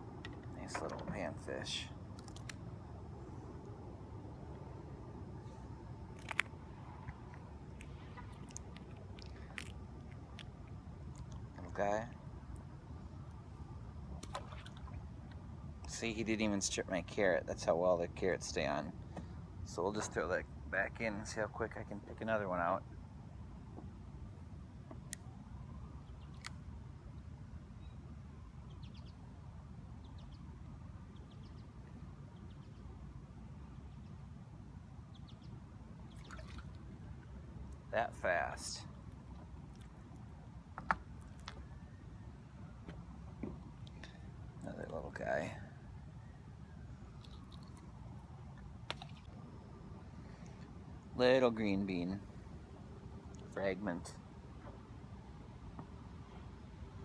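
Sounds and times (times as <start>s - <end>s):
steady low rumble: 0.0s - 24.8s
low background rumble: 0.0s - 57.0s
small clicks and handling noises: 2.2s - 2.6s
bird chirping: 28.6s - 29.2s, 31.1s - 31.7s.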